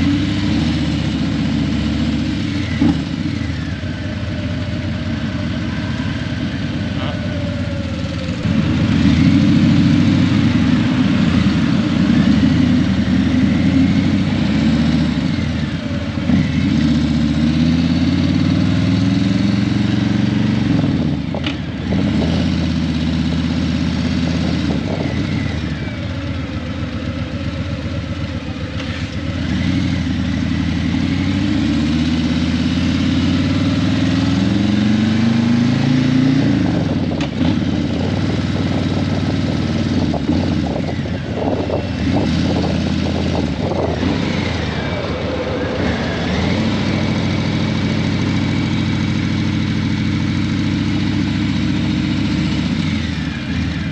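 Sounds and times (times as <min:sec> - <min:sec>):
motorcycle engine accelerating: 0:00.0 - 0:53.9.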